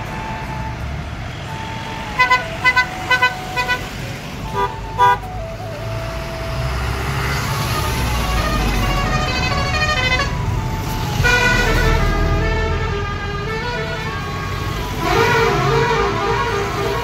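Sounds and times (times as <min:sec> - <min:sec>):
trucks driving past: 0:00.0 - 0:17.0
horn playing a tune: 0:02.1 - 0:06.8, 0:08.0 - 0:10.4.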